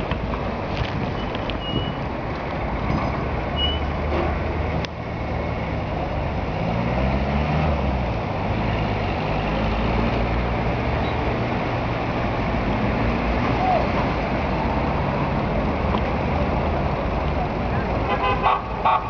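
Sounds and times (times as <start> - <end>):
traffic engines rumbling: 0.0 - 19.0
engine rising and falling in pitch: 4.8 - 15.9.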